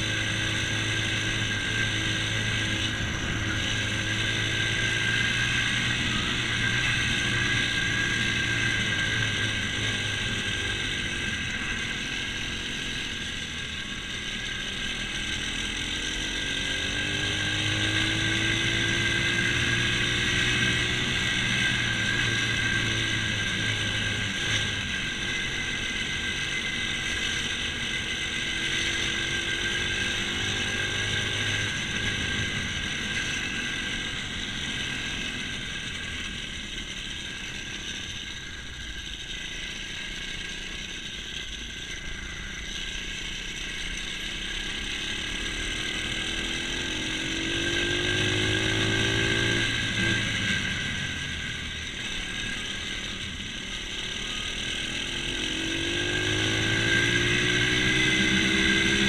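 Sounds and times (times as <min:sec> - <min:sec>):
small motorbike engine revving: 0:00.0 - 0:59.0
steady high whine: 0:00.0 - 0:59.0.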